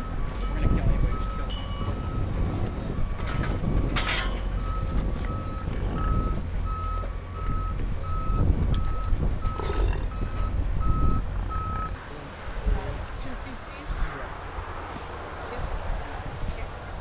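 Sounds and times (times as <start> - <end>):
vehicle reversing alarm beeping: 0.0 - 12.0.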